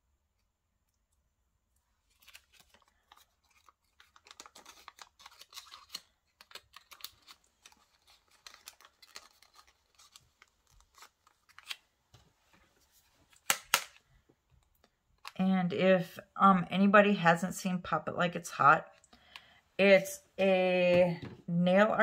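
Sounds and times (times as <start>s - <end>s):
faint crinkling and scratching: 1.8s - 13.4s.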